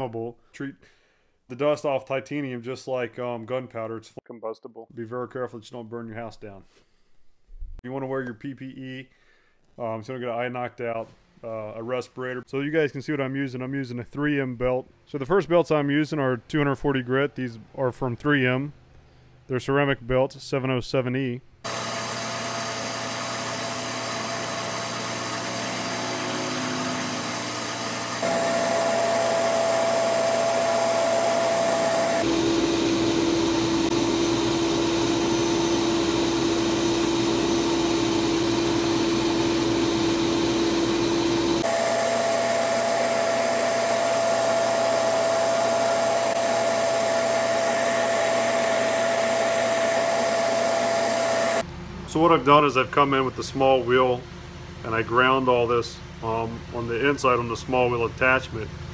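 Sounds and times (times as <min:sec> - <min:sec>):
belt grinder whining: 0:21.6 - 0:51.6.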